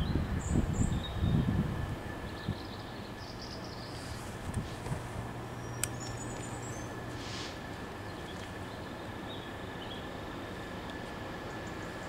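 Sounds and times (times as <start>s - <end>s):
distant diesel locomotive drone: 0.0s - 12.0s
outdoor noise haze: 0.0s - 12.0s
bird chirps: 5.6s - 7.0s.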